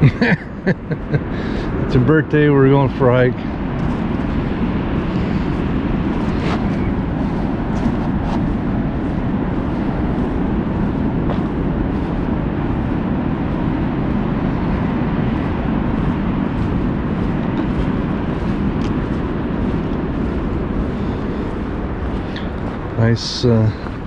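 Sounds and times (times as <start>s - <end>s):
footsteps on dirt trail: 0.0s - 24.0s
low rushing outdoor noise: 0.0s - 24.0s
people speaking: 1.9s - 3.5s, 23.0s - 23.9s.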